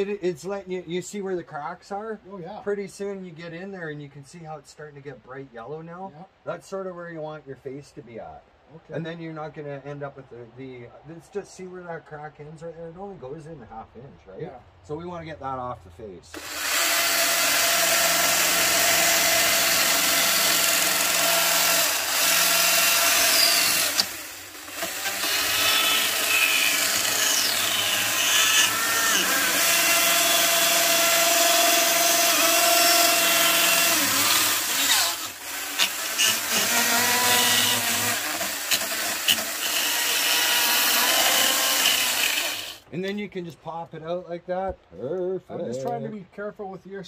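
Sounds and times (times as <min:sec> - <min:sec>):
chainsaw cutting wood: 0:16.4 - 0:42.9.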